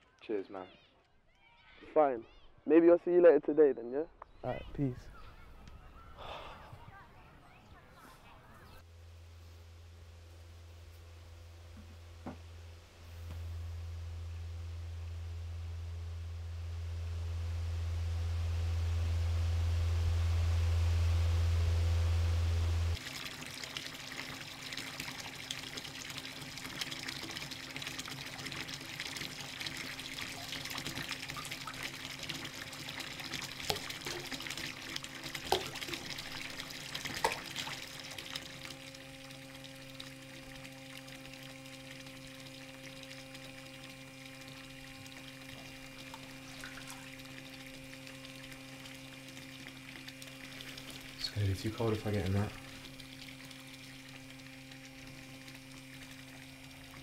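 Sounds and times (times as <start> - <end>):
low steady hum: 8.2 - 57.0
tap water filling bathtub: 22.9 - 57.0
water drips: 22.9 - 57.0.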